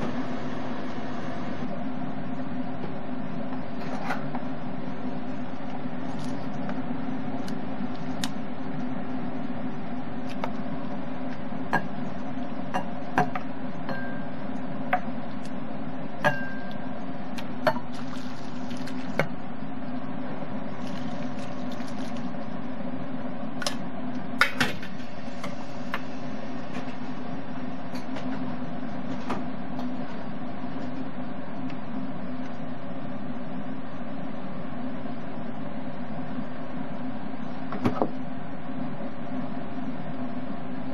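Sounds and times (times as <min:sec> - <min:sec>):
steady low hum: 0:00.0 - 0:40.9
broth pouring into bowl: 0:17.9 - 0:19.2, 0:20.7 - 0:22.3.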